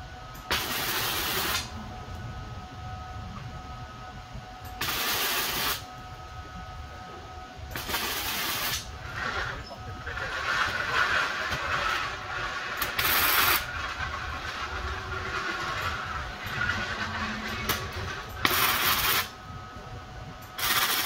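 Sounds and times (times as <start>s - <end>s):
steady background hum: 0.0s - 21.0s
welding bursts on steel: 0.5s - 1.7s, 4.8s - 5.9s, 7.7s - 8.9s, 10.1s - 14.7s, 18.4s - 19.3s, 20.6s - 21.0s.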